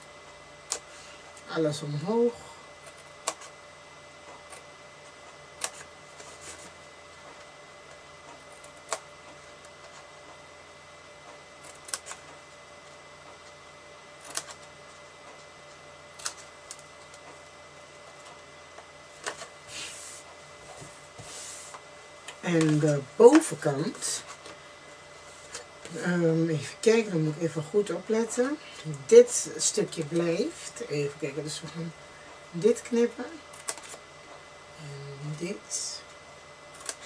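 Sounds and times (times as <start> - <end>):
faint hum: 0.0 - 37.0
paper rustling: 5.7 - 6.8
scissors snipping cardstock: 11.6 - 12.3, 14.2 - 14.7, 16.2 - 17.2.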